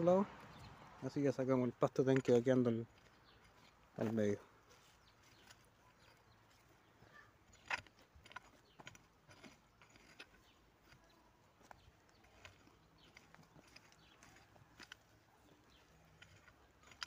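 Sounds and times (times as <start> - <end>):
hand hoe scraping soil: 2.0 - 17.0.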